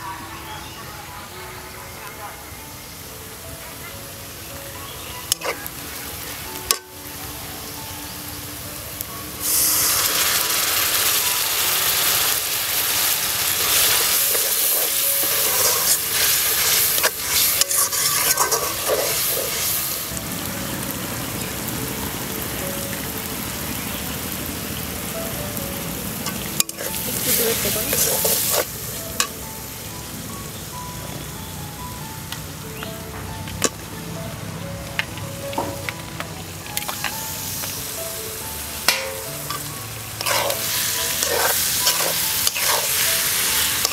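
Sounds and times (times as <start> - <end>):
onions sizzling in oil: 2.6 - 43.9
pan hissing loudly: 9.4 - 20.1, 38.9 - 43.9.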